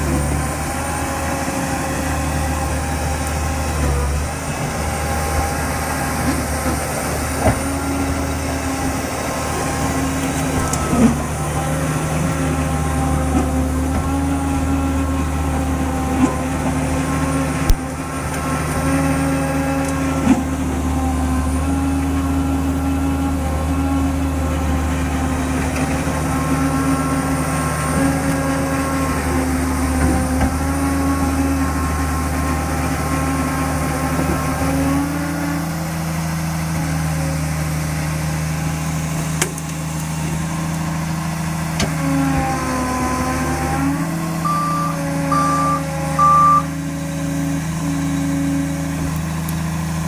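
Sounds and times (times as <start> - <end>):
bulldozer diesel engine running: 0.0 - 50.0
short reversing beeps: 44.4 - 46.8.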